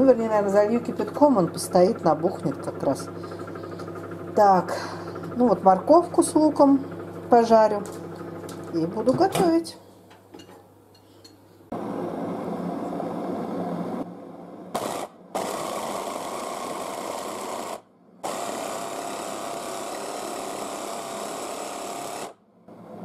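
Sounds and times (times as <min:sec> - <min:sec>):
blender motor whirring: 0:00.6 - 0:09.3, 0:14.8 - 0:23.0.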